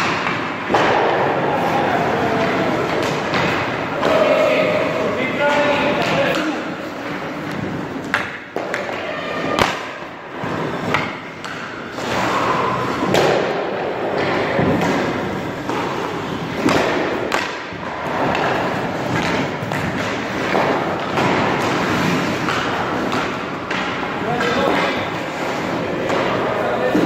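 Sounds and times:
pucks thudding on pads: 0.0s - 27.0s
skate blades scraping ice: 10.3s - 27.0s.

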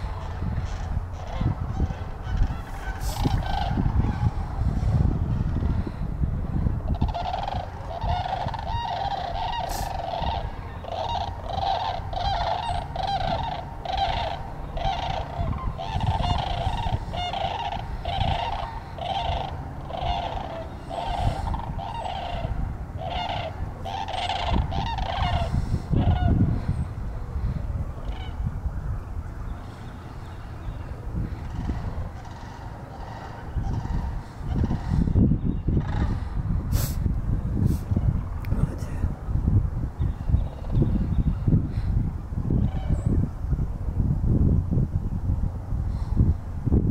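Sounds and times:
cranes rattling calls: 0.0s - 4.6s, 6.8s - 26.8s, 27.4s - 28.5s, 29.5s - 36.3s
low rumble: 0.0s - 46.9s.

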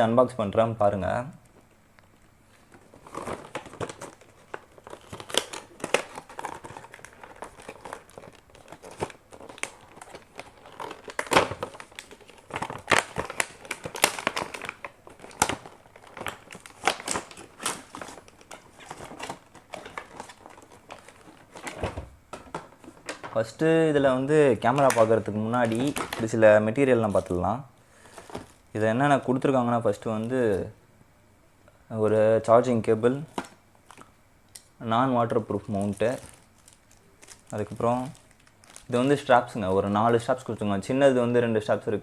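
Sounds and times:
plastic bag crinkling: 2.7s - 23.5s, 24.6s - 27.4s, 28.0s - 28.8s, 35.3s - 39.3s.

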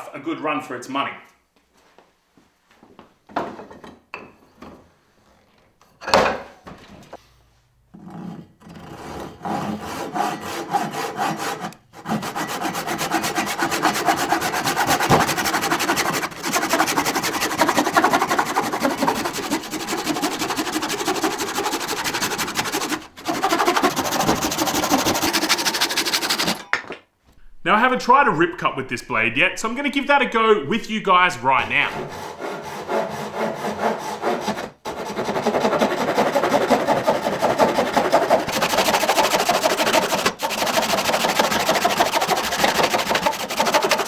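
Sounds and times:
hand saw cutting hardwood: 8.0s - 26.6s, 31.7s - 44.0s.

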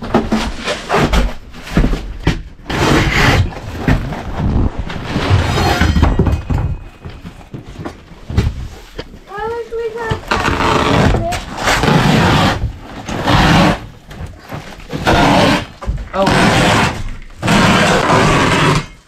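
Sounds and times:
carpet scraping and tearing: 2.6s - 6.0s, 10.0s - 19.0s.

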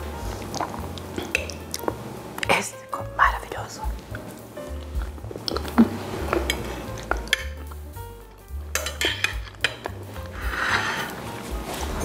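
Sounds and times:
metal fork clinking on plate: 8.8s - 9.9s.

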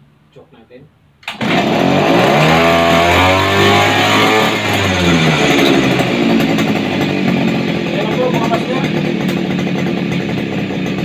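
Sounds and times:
starter cord pull: 1.2s - 1.8s
outboard motor revving: 1.3s - 11.0s.

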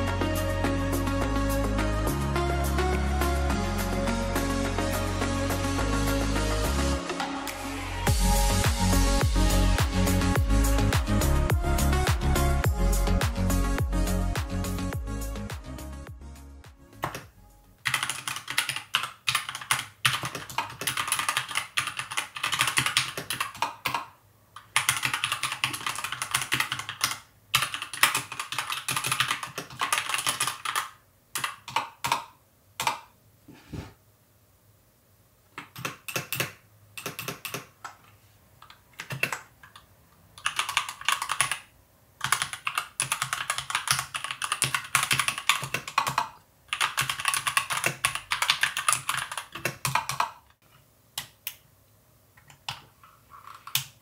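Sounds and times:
mechanical keyboard typing: 17.0s - 33.1s, 35.6s - 38.0s, 38.6s - 50.5s.

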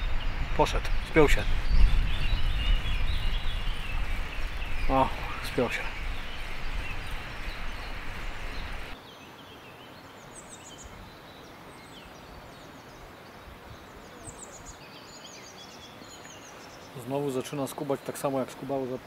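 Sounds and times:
wind rumble on microphone: 0.0s - 9.0s
songbirds chirping: 0.0s - 19.0s.

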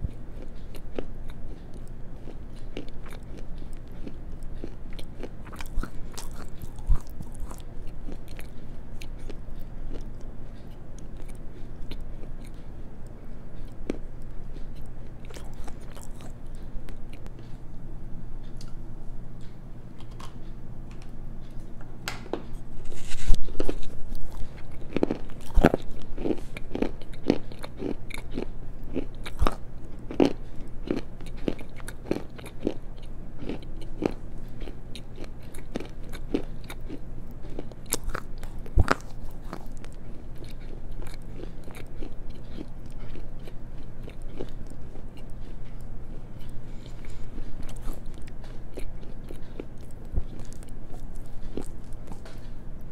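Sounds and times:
slate crunching between teeth: 0.4s - 12.6s, 14.8s - 17.3s, 22.8s - 52.5s.

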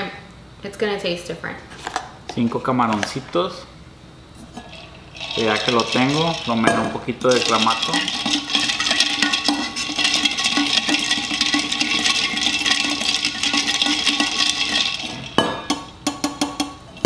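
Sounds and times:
ice rattling in metal tumbler: 4.5s - 15.9s.

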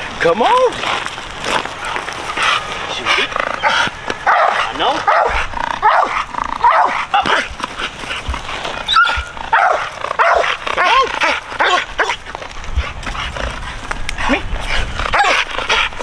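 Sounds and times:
dog barking: 3.6s - 7.5s, 8.9s - 12.2s, 15.1s - 15.9s.

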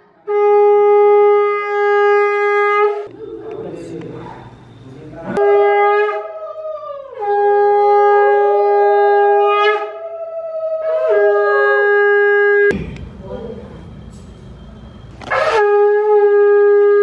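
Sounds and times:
conch shell blasts: 0.2s - 3.1s, 5.3s - 6.3s, 15.1s - 17.0s.

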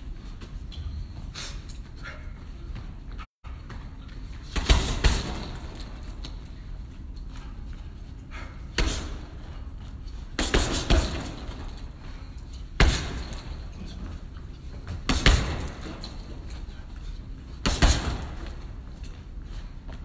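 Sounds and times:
punches thudding on punching bag: 4.5s - 6.1s, 8.7s - 9.5s, 10.4s - 11.8s, 12.8s - 13.6s, 14.8s - 16.2s, 17.6s - 18.7s.

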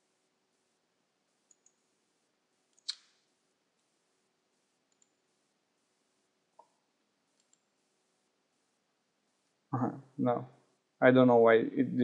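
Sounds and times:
computer mouse clicks: 1.5s - 1.8s, 2.7s - 3.1s, 4.9s - 5.2s, 6.6s - 7.7s.

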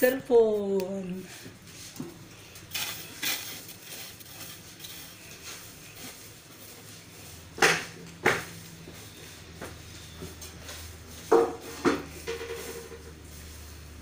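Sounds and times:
cleaning tools clattering: 2.6s - 5.6s
mop knocking on hard surfaces: 11.2s - 13.0s.

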